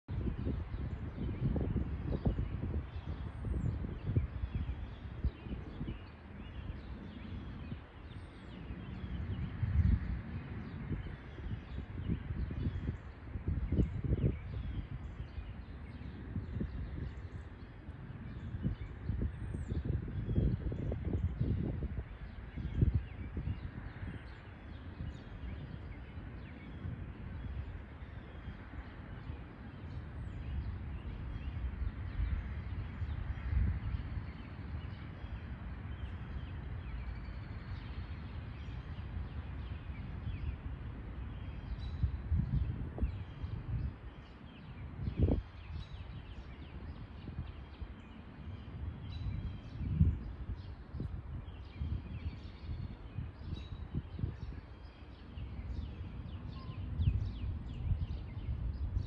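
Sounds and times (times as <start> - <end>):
low outdoor rumble: 0.0 - 53.4
faint bird chirps: 51.1 - 58.7.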